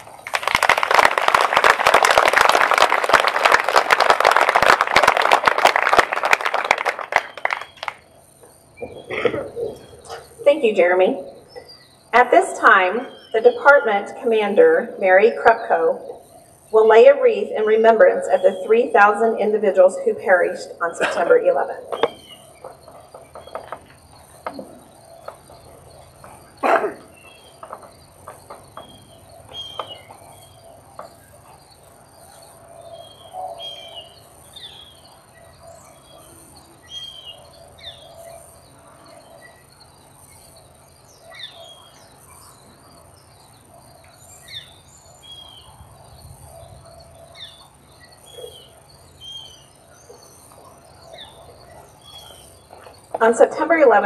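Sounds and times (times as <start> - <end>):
insect trill: 0.0 - 54.0
birds chirping: 4.3 - 54.0.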